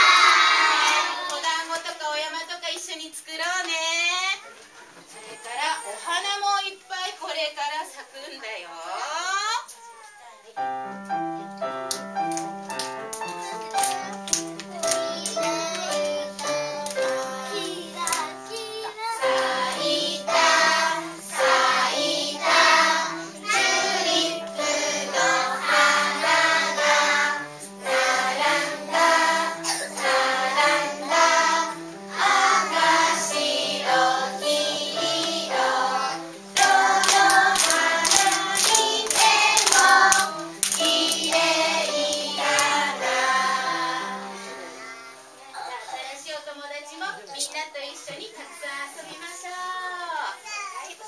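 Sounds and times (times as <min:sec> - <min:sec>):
group of voices singing: 0:00.0 - 0:01.3, 0:15.1 - 0:44.9
instrumental accompaniment: 0:10.6 - 0:45.6
hand claps: 0:11.9 - 0:18.7, 0:36.6 - 0:42.9.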